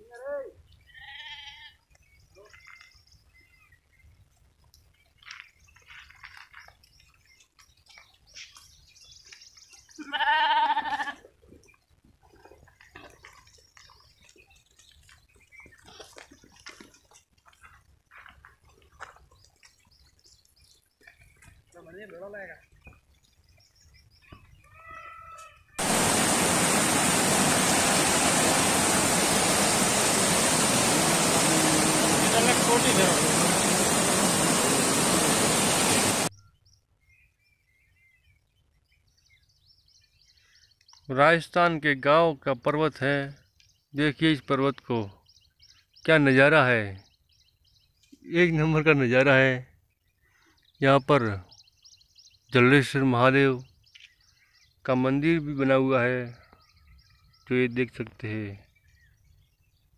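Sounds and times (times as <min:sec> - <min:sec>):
sheep bleating: 0:00.9 - 0:01.8, 0:10.0 - 0:11.2
faint rustles and clicks: 0:04.3 - 0:09.6
mountain stream rushing over boulders: 0:25.8 - 0:36.3.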